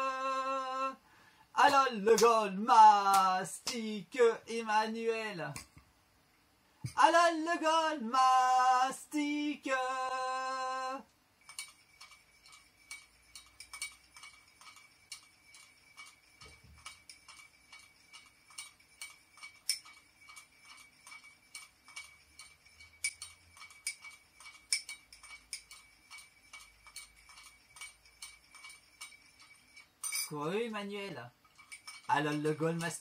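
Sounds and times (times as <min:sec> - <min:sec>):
faint steady ring: 0:10.0 - 0:33.0
teaspoon clinking in china cup: 0:11.4 - 0:30.4, 0:31.4 - 0:33.0.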